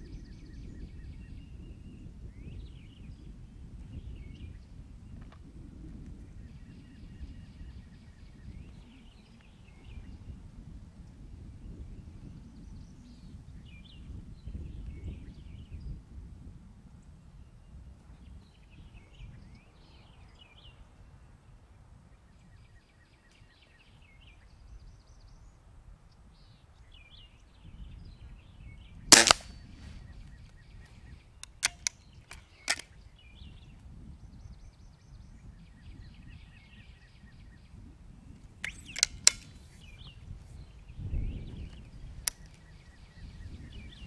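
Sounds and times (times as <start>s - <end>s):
metallic clicks of rifle cocking: 29.1s - 29.6s, 31.4s - 32.9s, 38.6s - 39.6s
air rifle shot: 29.1s - 29.8s, 32.6s - 32.8s
light clicks: 31.4s - 32.9s.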